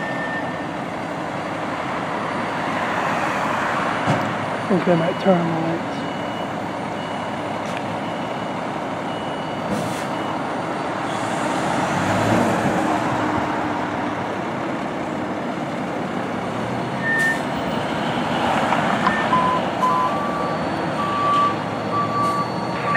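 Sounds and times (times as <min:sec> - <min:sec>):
reversing beeper: 0:00.0 - 0:01.2, 0:04.5 - 0:11.2, 0:17.0 - 0:22.9
diesel engine running: 0:04.2 - 0:22.9.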